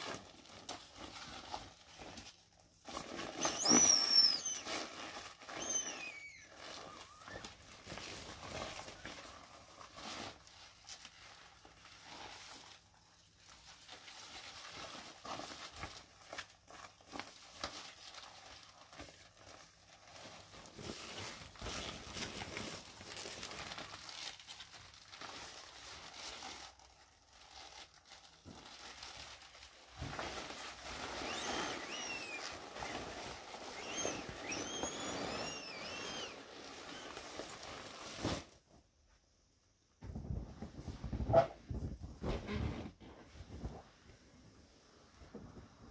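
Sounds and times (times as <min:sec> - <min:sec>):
plastic toys crinkling: 0:00.0 - 0:38.6
short squeaks: 0:03.4 - 0:04.8, 0:05.5 - 0:07.4, 0:33.8 - 0:37.2.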